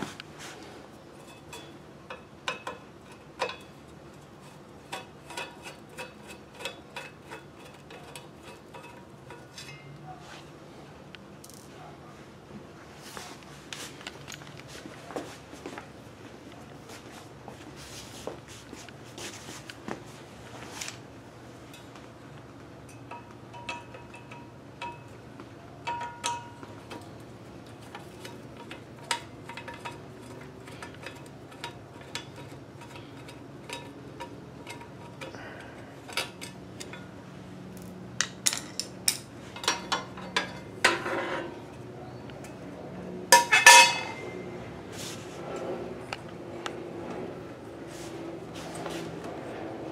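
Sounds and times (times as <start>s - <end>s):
metal cover clattering on tile: 43.3s - 44.3s
screwdriver and metal parts clinking: 43.4s - 44.2s.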